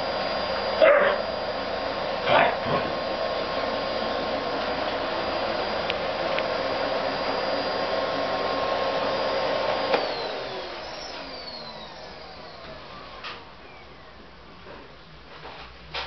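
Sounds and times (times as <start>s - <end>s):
vacuum cleaner running: 0.0s - 15.7s.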